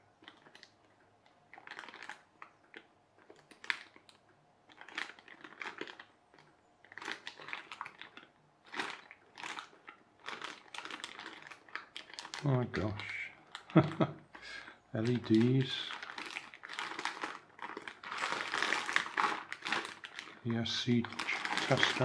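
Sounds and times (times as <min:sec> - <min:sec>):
plastic bag crinkling: 0:00.0 - 0:22.0.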